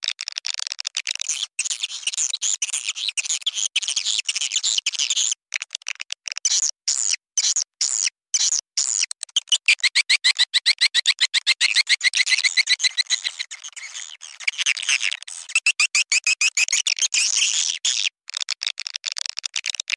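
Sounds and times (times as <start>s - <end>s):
swiftlets chirping and twittering: 9.3s - 17.6s.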